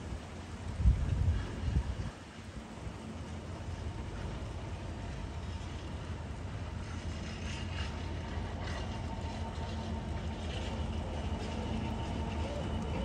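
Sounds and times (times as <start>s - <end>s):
freight train rumbling past: 0.0s - 13.0s
wheels scraping on rail: 3.7s - 13.0s.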